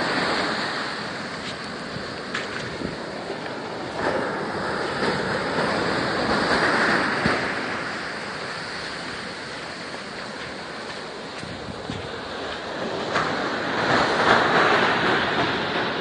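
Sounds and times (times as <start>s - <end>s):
ocean surf breaking on beach: 0.0s - 16.0s.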